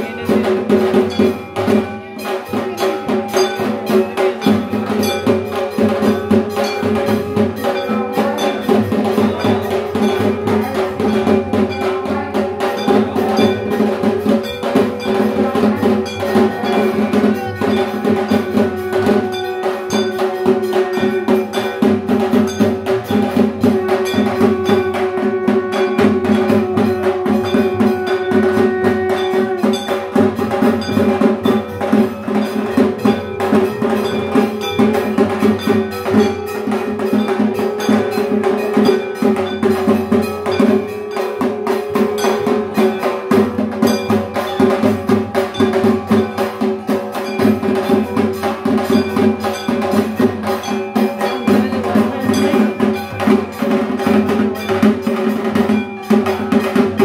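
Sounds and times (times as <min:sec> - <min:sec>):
drums beaten in fast rhythm: 0:00.0 - 0:57.0.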